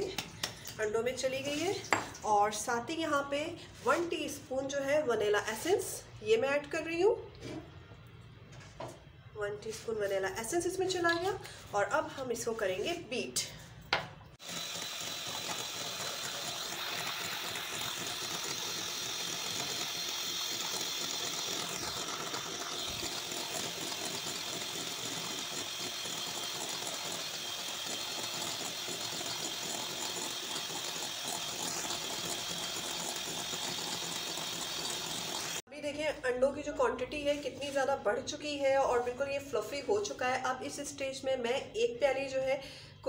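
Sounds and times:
electric hand mixer whipping: 0:14.4 - 0:35.7.

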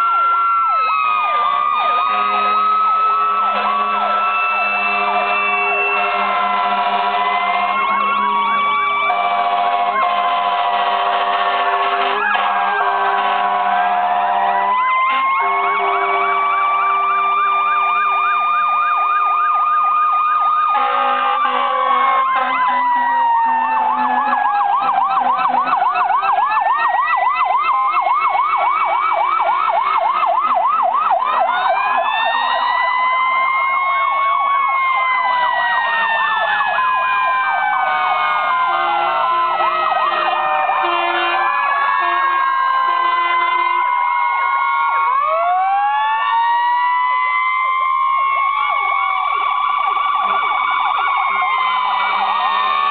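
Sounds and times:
fire engine sirens wailing: 0:00.0 - 0:52.9
steady horn tones: 0:01.4 - 0:18.1, 0:20.7 - 0:25.8, 0:37.9 - 0:43.9.

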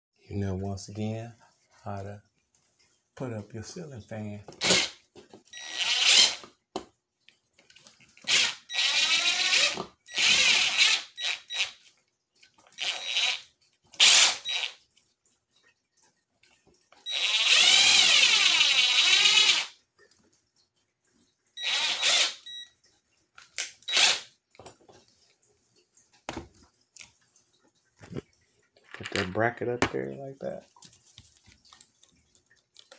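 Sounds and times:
cordless drill driving screws: 0:04.6 - 0:05.0, 0:05.6 - 0:06.4, 0:08.2 - 0:11.8, 0:12.8 - 0:13.4, 0:14.0 - 0:14.7, 0:17.1 - 0:19.7, 0:21.6 - 0:22.6, 0:23.9 - 0:24.2.

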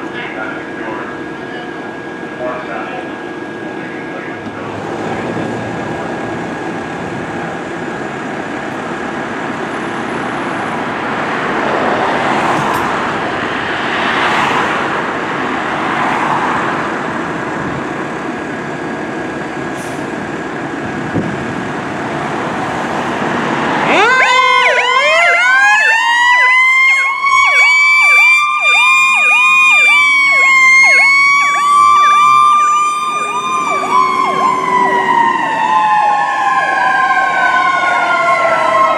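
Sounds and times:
diesel engine running: 0:00.0 - 0:13.6, 0:16.8 - 0:36.6
siren wailing: 0:23.8 - 0:38.9
siren yelp: 0:23.8 - 0:38.9.

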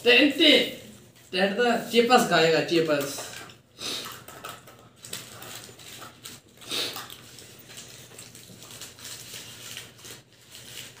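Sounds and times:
paper wrappers rustling: 0:00.0 - 0:11.0
chewing: 0:04.0 - 0:10.8
sipping through straws: 0:06.5 - 0:08.0.

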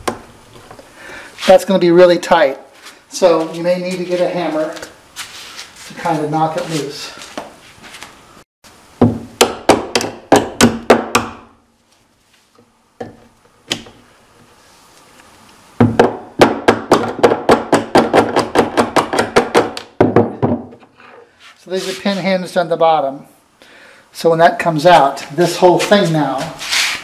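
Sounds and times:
hammer striking a hinge pin: 0:09.0 - 0:11.5.

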